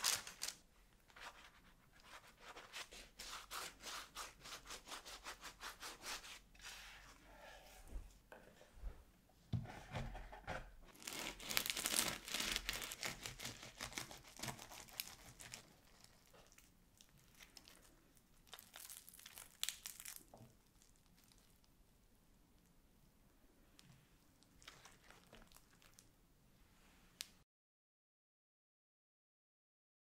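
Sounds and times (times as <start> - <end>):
crinkling and crackling: 10.9 - 21.7, 23.8 - 26.1.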